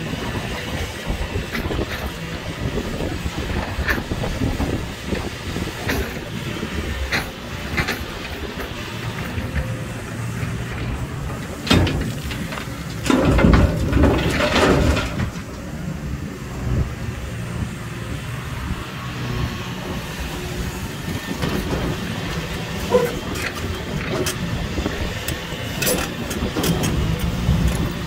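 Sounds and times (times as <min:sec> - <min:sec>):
excavator diesel engine running: 0:00.0 - 0:28.0
rock crashing into truck bed: 0:11.6 - 0:15.5.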